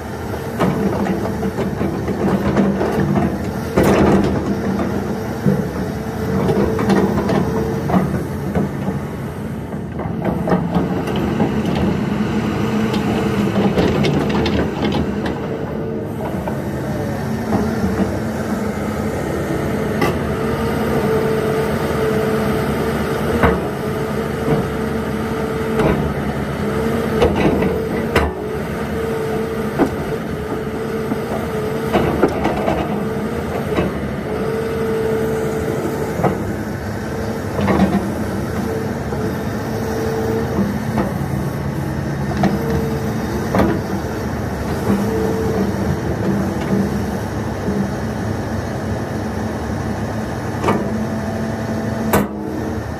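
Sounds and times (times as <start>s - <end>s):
excavator diesel engine running: 0.0s - 52.9s.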